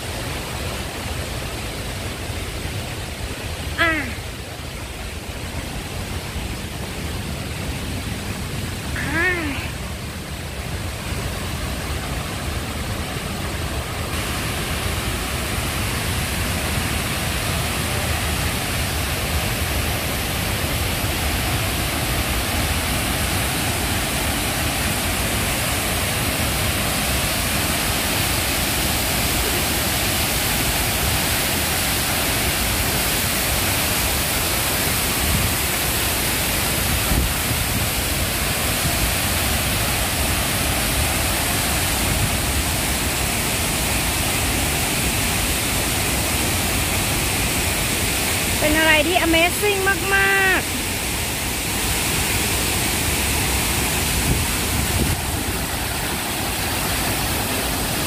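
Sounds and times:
waterfall rushing: 0.0 - 58.0.

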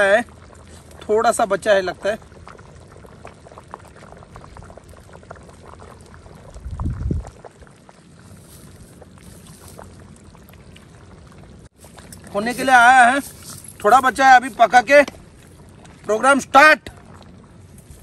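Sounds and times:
liquid gravy sounds: 0.0 - 18.0.

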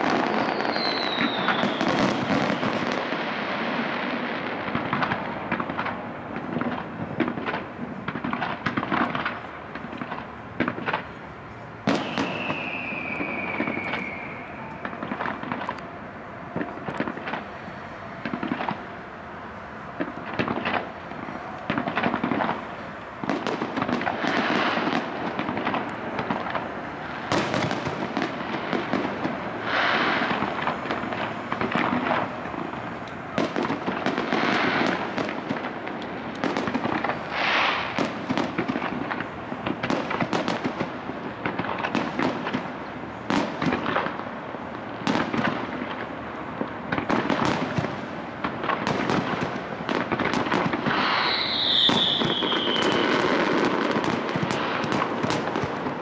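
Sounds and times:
falling firework whistle: 0.0 - 3.7, 10.9 - 35.7, 36.3 - 40.9, 48.8 - 56.0
firework shell bursts: 11.9 - 15.9, 48.5 - 56.0.

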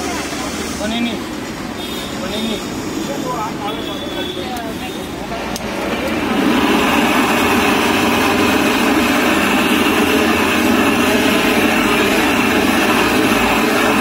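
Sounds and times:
blowtorch flame roaring: 5.1 - 14.0.

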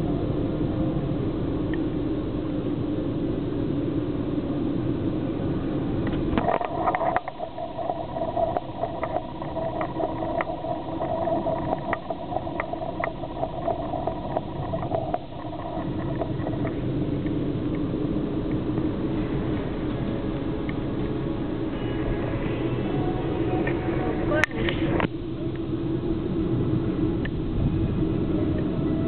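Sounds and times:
car cabin road and engine rumble: 0.0 - 21.6
steady whine: 0.0 - 29.0.

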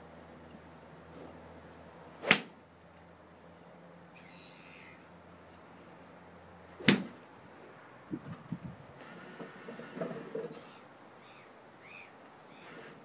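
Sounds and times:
golf club striking ball: 2.2 - 2.6, 6.8 - 7.2.

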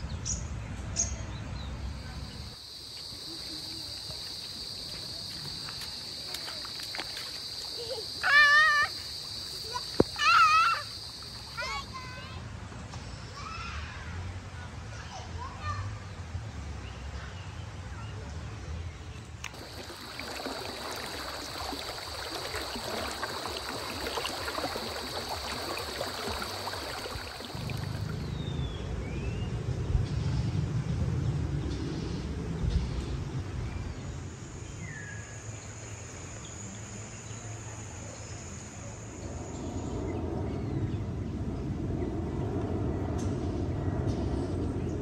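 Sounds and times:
high-pitched insect drone: 19.6 - 28.2.

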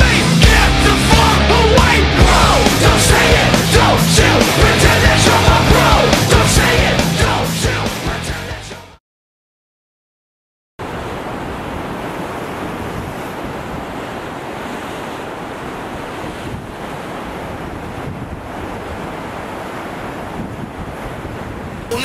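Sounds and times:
sea surf: 0.0 - 8.6, 10.8 - 22.0
wind on microphone: 10.9 - 22.0.

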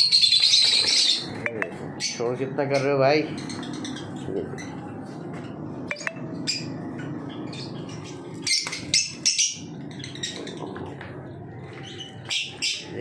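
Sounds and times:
lovebirds chirping: 5.9 - 13.0.

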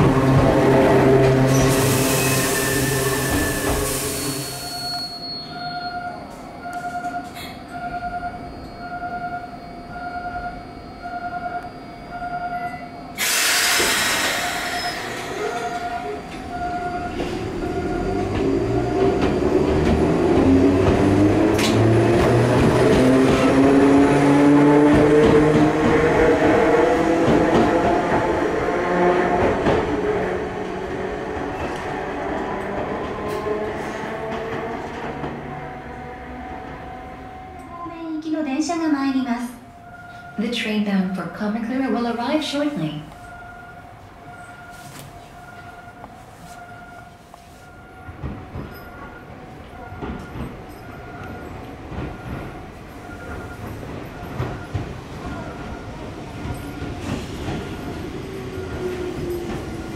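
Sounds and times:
train noise: 0.0 - 59.9
level crossing warning bell: 4.4 - 13.2, 37.1 - 59.9
loud hiss: 13.2 - 14.9
train wheels clacking: 48.0 - 59.9.

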